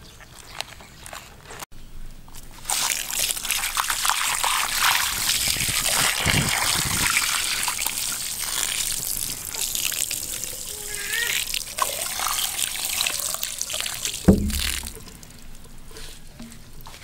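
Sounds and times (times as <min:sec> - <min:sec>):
water pouring and splashing: 0:02.3 - 0:17.0
dull low bump: 0:14.3 - 0:15.2.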